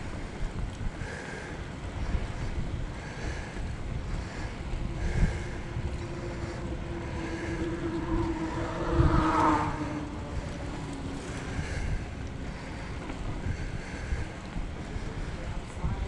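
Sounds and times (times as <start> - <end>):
wind buffeting microphone: 0.0 - 16.0
faint pitched tone: 4.9 - 11.3.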